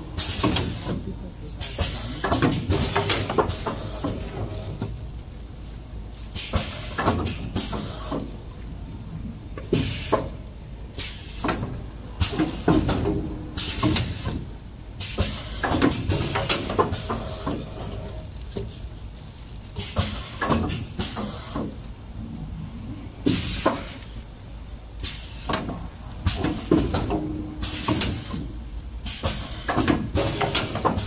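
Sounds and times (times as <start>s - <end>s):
plastic bags rustling and crinkling: 0.2s - 31.0s
low machine hum: 21.7s - 25.0s.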